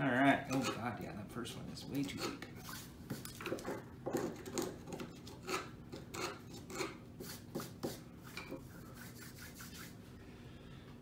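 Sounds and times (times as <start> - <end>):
screwdriver scraping wood: 2.0 - 8.5.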